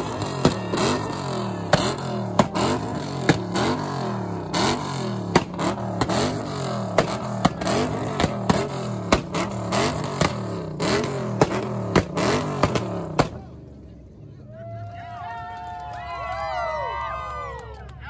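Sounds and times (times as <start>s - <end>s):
exhaust pops and bangs: 0.0s - 13.5s
car engine revving: 0.0s - 14.2s.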